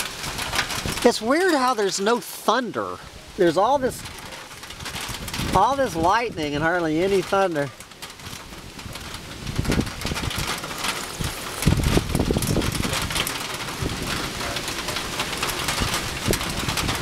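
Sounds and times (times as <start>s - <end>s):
low thunder rumbles: 0.0s - 1.7s, 3.0s - 17.0s
heavy rain and hail: 0.0s - 17.0s.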